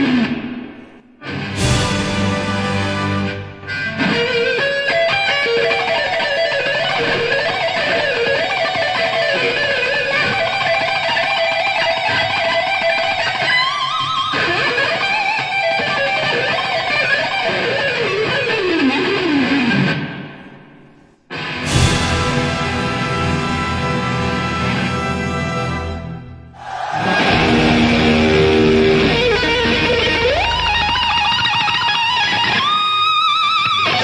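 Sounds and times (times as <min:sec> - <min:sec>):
electric guitar fast solo: 0:26.6 - 0:34.0.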